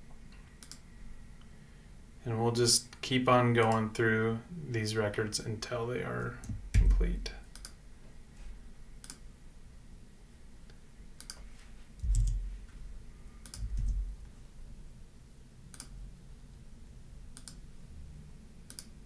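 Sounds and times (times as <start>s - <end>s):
keyboard and mouse clicks: 0.6s - 0.8s, 11.2s - 11.4s, 12.0s - 12.4s, 13.4s - 14.0s, 15.7s - 15.9s, 17.4s - 17.6s, 18.7s - 18.9s
dull low thumps: 6.4s - 7.3s, 12.0s - 12.6s, 13.6s - 14.2s.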